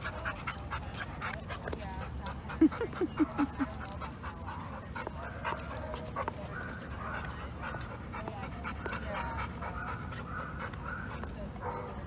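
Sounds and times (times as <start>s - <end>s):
dog panting: 0.0s - 12.0s.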